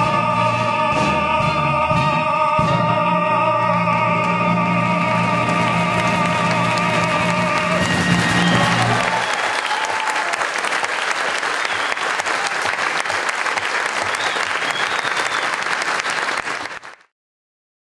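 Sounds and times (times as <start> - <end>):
audience applauding: 5.0 - 17.1.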